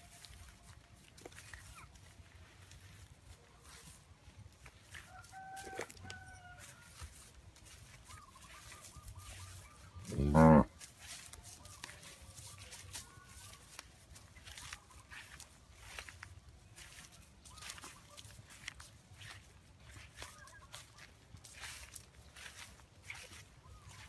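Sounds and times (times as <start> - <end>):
rooster crowing: 4.9 - 7.2.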